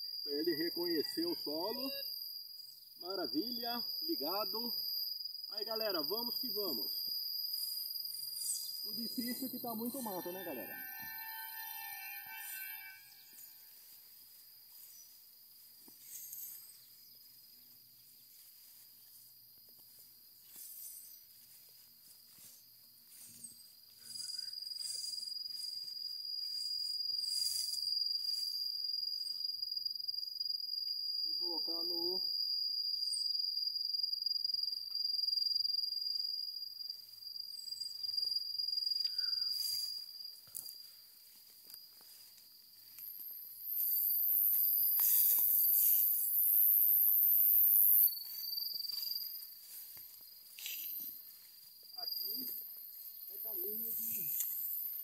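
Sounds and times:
thin steady high tone: 0:00.0 - 0:29.4, 0:37.5 - 0:55.0
insect trilling: 0:00.0 - 0:55.0
footsteps through tall grass: 0:13.3 - 0:28.8, 0:38.0 - 0:47.0, 0:47.7 - 0:55.0.

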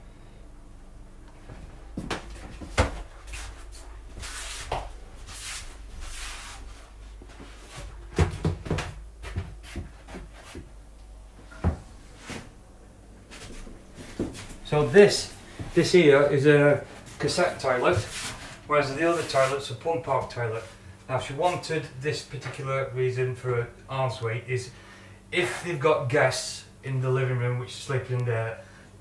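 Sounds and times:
knocks and bumps: 0:01.4 - 0:03.3, 0:07.3 - 0:10.7
soft rustling: 0:01.4 - 0:08.2, 0:09.2 - 0:19.6.

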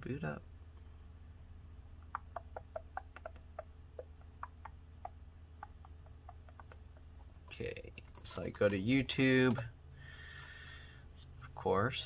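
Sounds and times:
low steady hum: 0:00.0 - 0:12.0
laptop keys and trackpad clicking: 0:07.5 - 0:09.7.

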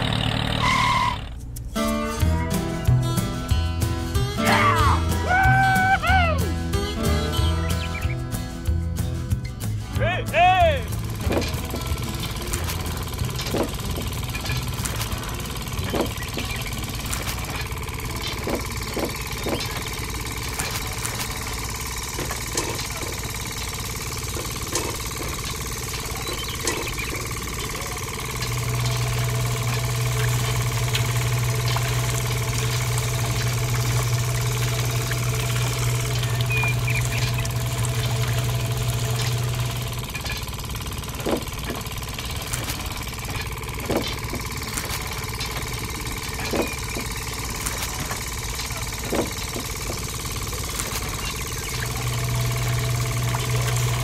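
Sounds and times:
small electric motor humming: 0:10.9 - 0:54.0.

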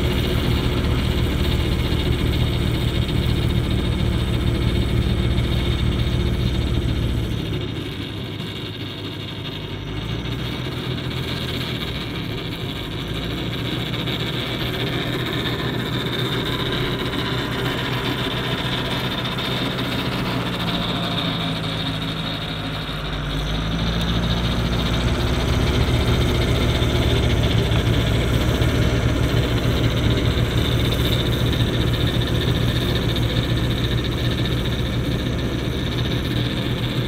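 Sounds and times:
tractor engine drone: 0:00.0 - 0:37.0
snowblower whoosh: 0:10.8 - 0:37.0.

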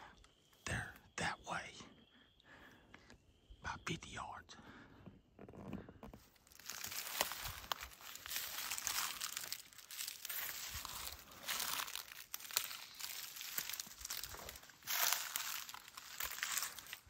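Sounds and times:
leaves crunching underfoot: 0:06.4 - 0:17.0
twigs snapping: 0:06.4 - 0:17.0.

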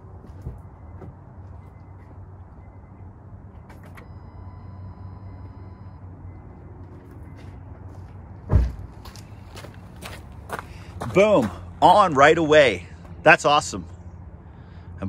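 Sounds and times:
faint high steady tone: 0:03.8 - 0:06.6.

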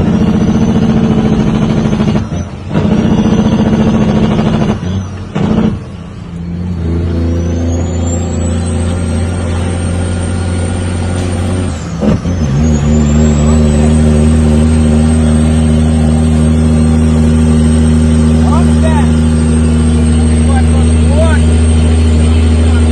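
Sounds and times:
diesel truck engine from inside cab: 0:00.0 - 0:22.9
high turbo whistle: 0:06.0 - 0:22.9.

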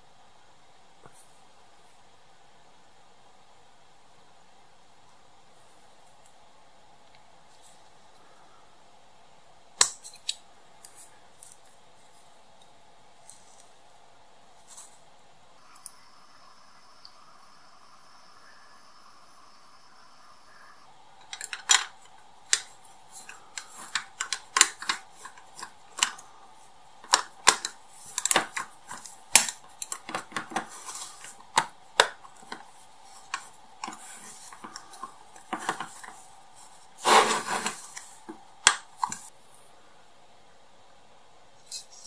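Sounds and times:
plastic parts clicking: 0:21.2 - 0:26.3, 0:27.0 - 0:36.2
plastic scrape: 0:21.3 - 0:26.2, 0:27.0 - 0:39.3.

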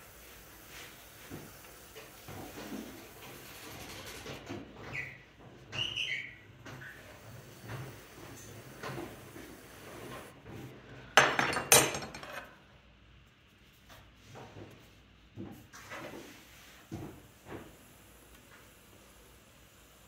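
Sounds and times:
short squeaks: 0:04.9 - 0:07.0
potter's wheel humming: 0:06.2 - 0:10.7.

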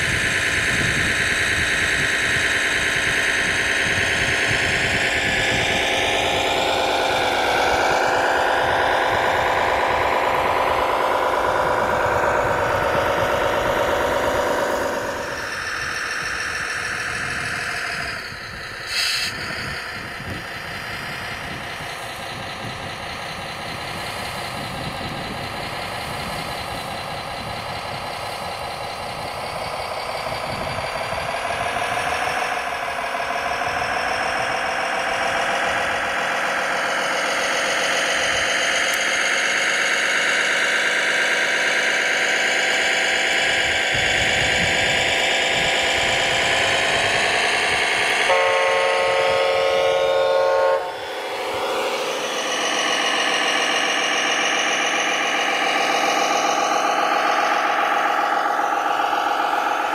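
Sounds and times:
model truck engine drone: 0:00.0 - 0:59.9
horn blowing: 0:48.3 - 0:51.0.

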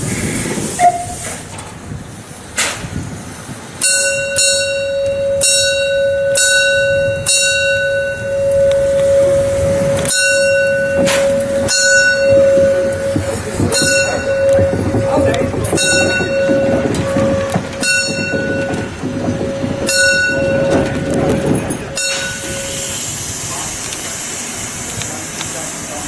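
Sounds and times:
bell struck ringing: 0:03.8 - 0:22.9
steady held tone: 0:03.8 - 0:23.2.

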